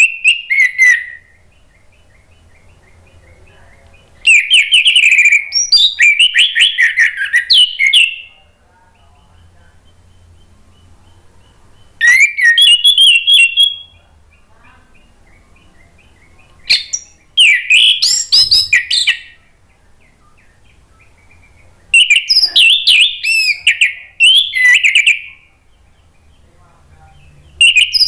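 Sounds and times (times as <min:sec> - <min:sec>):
thrush singing whistled phrases: 0:00.0 - 0:03.4, 0:04.2 - 0:08.3, 0:09.4 - 0:14.0, 0:15.0 - 0:19.4, 0:20.5 - 0:25.5, 0:27.6 - 0:28.0.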